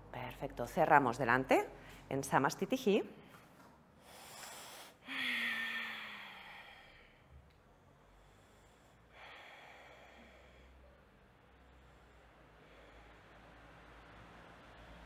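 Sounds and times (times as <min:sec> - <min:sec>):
woman breathing deeply: 0:04.0 - 0:15.0
woman sighing: 0:05.0 - 0:07.1.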